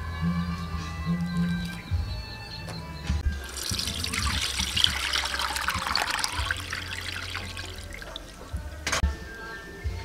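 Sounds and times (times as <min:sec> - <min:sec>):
liquid trickling and splashing into pot: 0:03.3 - 0:08.6.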